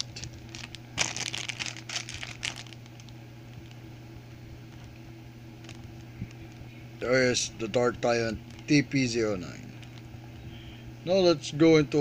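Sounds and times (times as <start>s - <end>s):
plastic bag crinkling: 0.0s - 3.8s, 4.6s - 5.0s, 5.6s - 6.7s, 7.7s - 10.2s
steady low hum: 0.0s - 12.0s.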